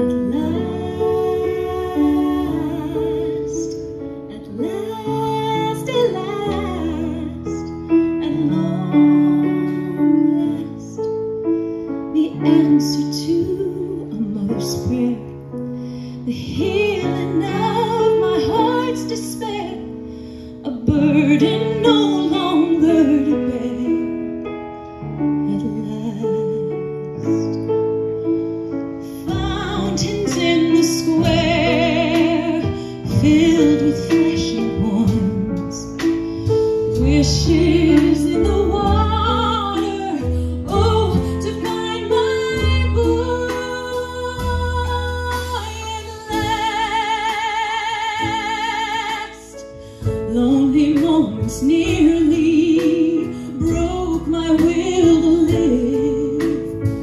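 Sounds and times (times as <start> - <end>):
piano: 0.0 - 57.0
woman singing with vibrato: 29.3 - 36.0, 37.0 - 49.6, 50.3 - 56.7.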